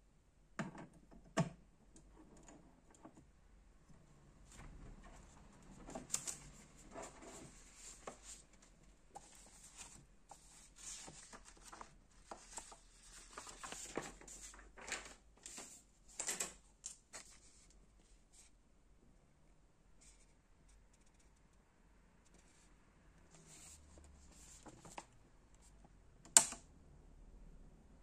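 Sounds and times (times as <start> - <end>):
paper sheets rustling: 4.6 - 17.7, 23.4 - 25.1.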